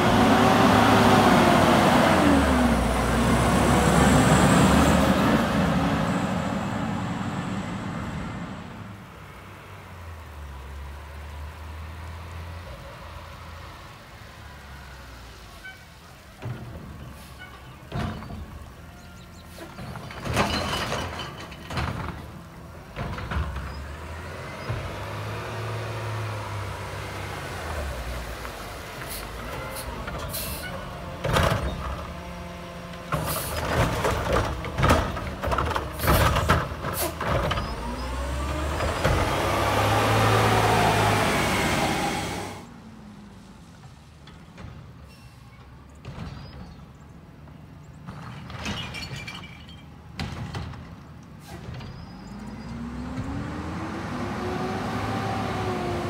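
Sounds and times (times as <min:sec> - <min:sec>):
garbage truck engine: 0:00.0 - 0:56.0
trash cart banging and clattering: 0:16.2 - 0:25.4, 0:29.0 - 0:40.0, 0:45.9 - 0:52.5.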